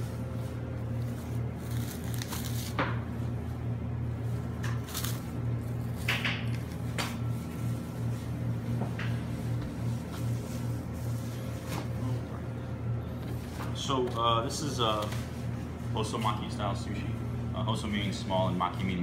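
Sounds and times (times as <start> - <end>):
steady low hum: 0.0 - 19.0
plastic wrap crackling: 1.0 - 2.8.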